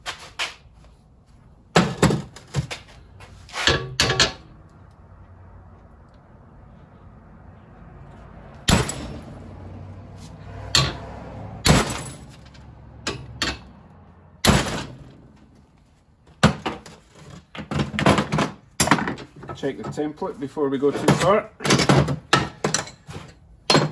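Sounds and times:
hammer striking metal: 0:10.6 - 0:12.3.

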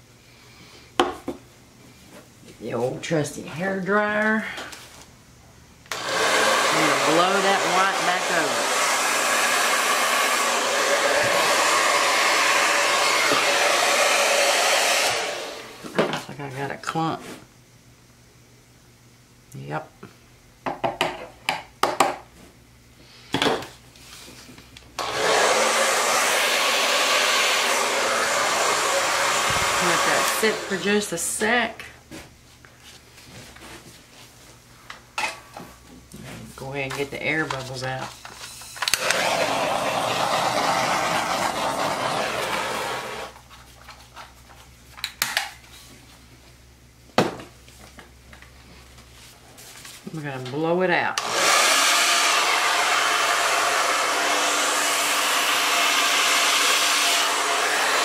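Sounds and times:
hair dryer blowing: 0:05.9 - 0:16.0, 0:25.0 - 0:31.7, 0:38.8 - 0:43.4, 0:51.2 - 0:58.0
torch flame hissing: 0:25.0 - 0:31.2, 0:39.0 - 0:43.4.

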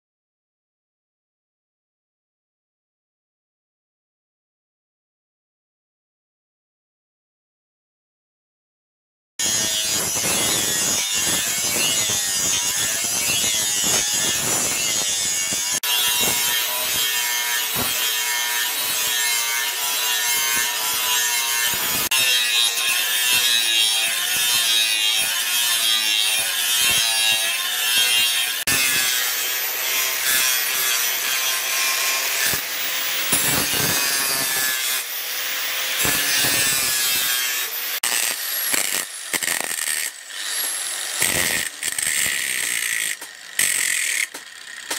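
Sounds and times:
angle grinder grinding steel: 0:09.4 - 0:44.9.

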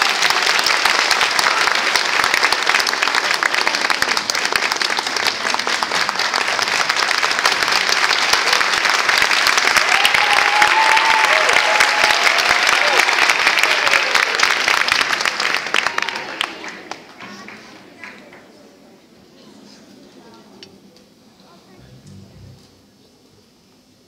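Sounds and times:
audience applauding: 0:00.0 - 0:18.1.

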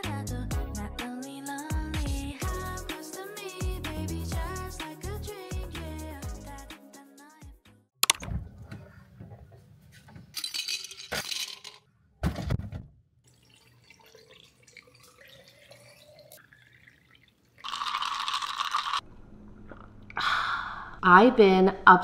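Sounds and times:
liquid poured into a glass: 0:13.3 - 0:19.0.

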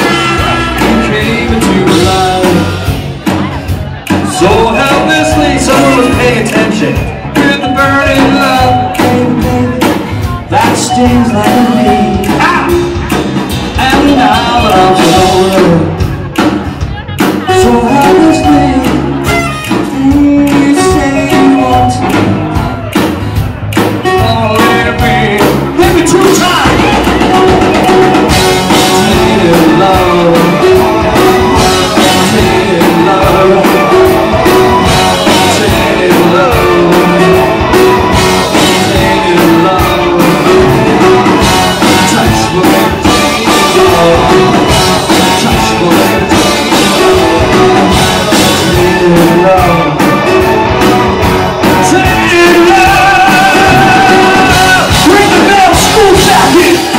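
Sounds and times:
bass guitar: 0:00.0 - 0:56.9
drum kit: 0:00.0 - 0:56.9
electric guitar: 0:00.0 - 0:56.9
person singing: 0:00.0 - 0:56.9.

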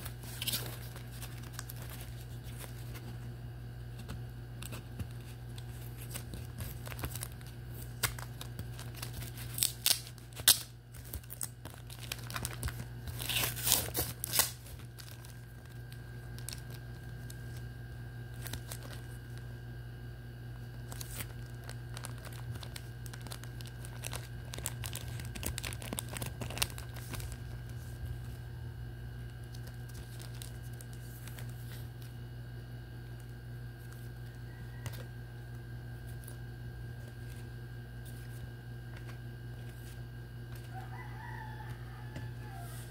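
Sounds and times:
plastic card sleeves rustling: 0:00.0 - 0:03.3, 0:03.9 - 0:19.5, 0:20.7 - 0:28.4, 0:29.2 - 0:32.2, 0:36.0 - 0:41.1
steady low hum: 0:00.0 - 0:42.9
cardboard packaging being torn: 0:05.6 - 0:17.4, 0:20.8 - 0:27.6.

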